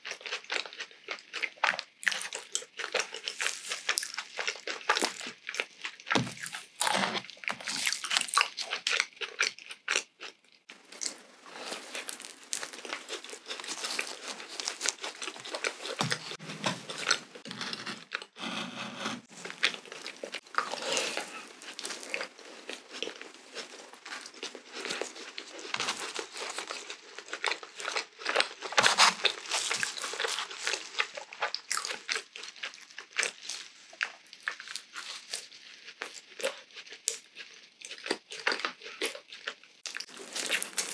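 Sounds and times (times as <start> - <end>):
chewing and biting donut: 0.0 - 40.9.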